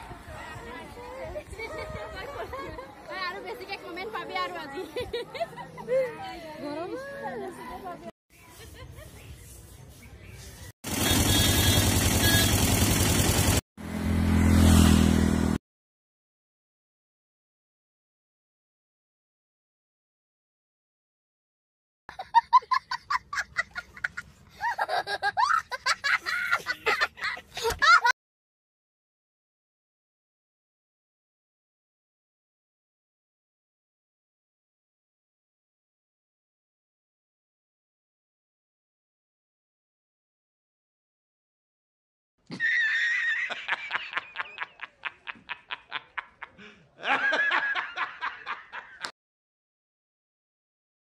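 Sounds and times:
high-pitched laugh: 0:22.1 - 0:28.1, 0:42.5 - 0:49.1.

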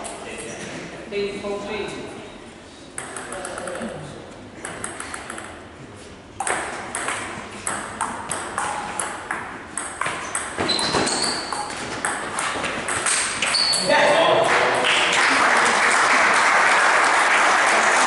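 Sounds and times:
ball bouncing on table: 0:03.0 - 0:03.9, 0:04.6 - 0:05.6, 0:06.4 - 0:13.6
ball clicking off bats: 0:03.0 - 0:03.9, 0:04.6 - 0:05.6.

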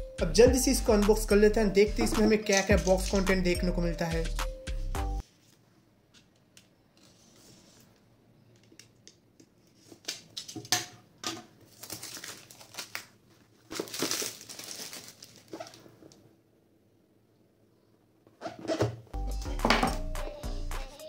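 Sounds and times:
shrink-wrap film crinkling: 0:11.7 - 0:16.2.

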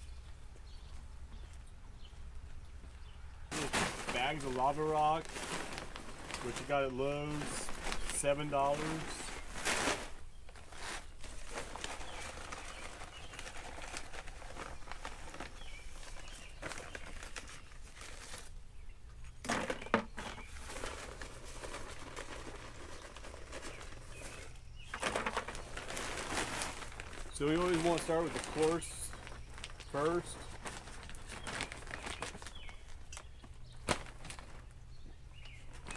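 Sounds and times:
plastic bag rustling: 0:03.5 - 0:18.6, 0:19.5 - 0:34.8, 0:35.4 - 0:35.9
rocks clattering in bucket: 0:19.4 - 0:29.4.

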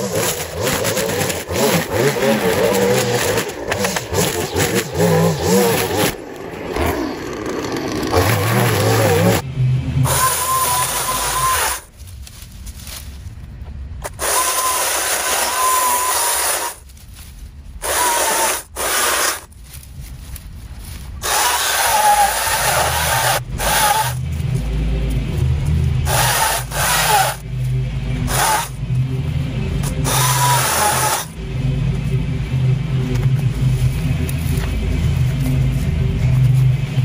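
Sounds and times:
cordless saw cutting brush: 0:00.0 - 0:09.4, 0:10.0 - 0:11.9, 0:14.0 - 0:16.8, 0:17.8 - 0:19.5, 0:21.2 - 0:24.2, 0:26.0 - 0:27.4, 0:28.3 - 0:28.8, 0:29.8 - 0:31.4.

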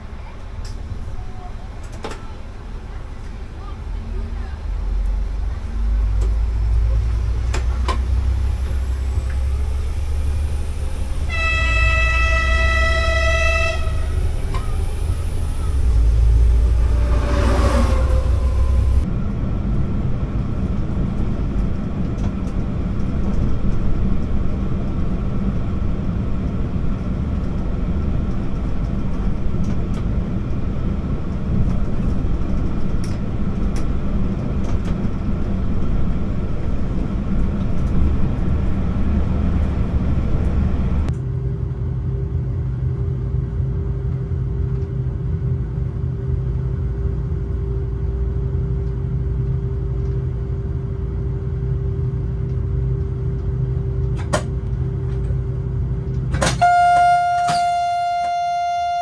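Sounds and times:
train running on track: 0:00.0 - 0:59.0
sound sweeping down in pitch: 0:08.8 - 0:19.1
train horn: 0:11.2 - 0:14.7, 0:16.3 - 0:19.0, 0:56.4 - 0:59.0.

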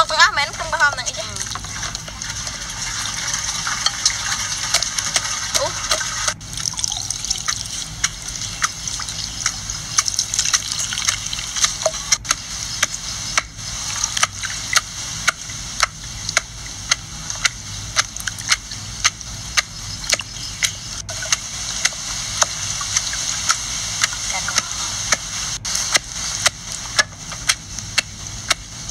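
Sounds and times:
steady hiss: 0:00.0 - 0:28.9
wet food squelching: 0:01.2 - 0:24.7
sharp clicks: 0:07.5 - 0:13.5, 0:14.1 - 0:28.6.

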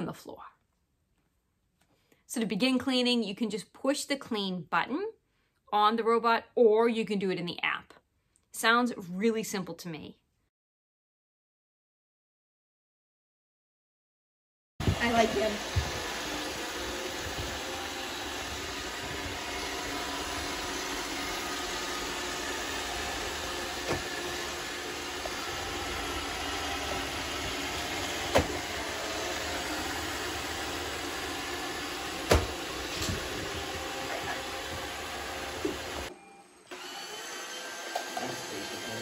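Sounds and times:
robot vacuum running: 0:14.8 - 0:39.0.

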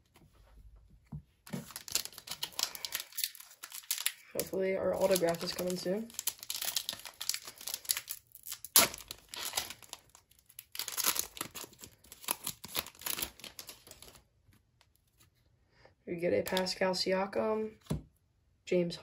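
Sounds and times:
foil pack crinkling: 0:01.5 - 0:14.2.

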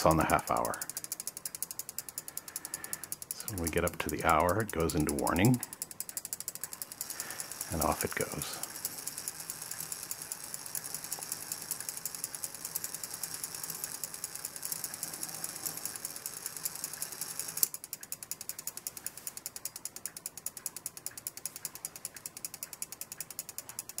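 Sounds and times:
clock strike train ratcheting: 0:00.0 - 0:24.0
clock ticking: 0:00.0 - 0:24.0.

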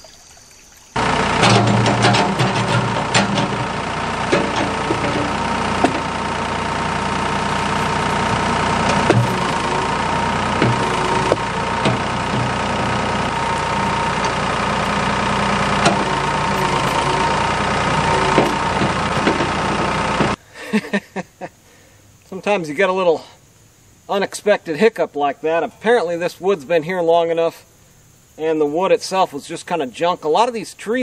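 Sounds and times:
backhoe engine running: 0:01.0 - 0:20.4
bucket knocking against logs: 0:01.4 - 0:06.3, 0:07.2 - 0:17.2, 0:17.9 - 0:20.4.

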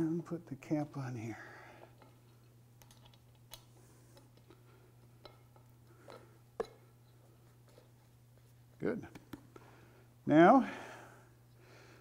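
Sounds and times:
low steady hum: 0:00.0 - 0:12.0
small metal parts clicking: 0:02.0 - 0:03.7.

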